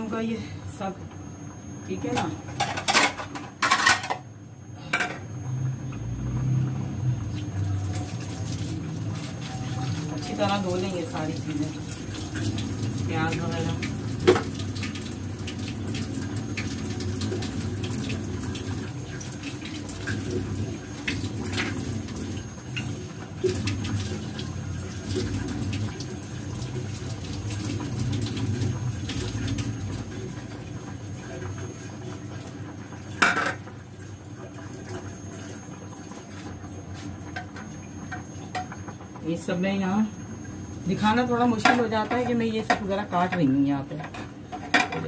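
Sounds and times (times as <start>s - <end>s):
tap water running into sink: 7.2s - 39.2s.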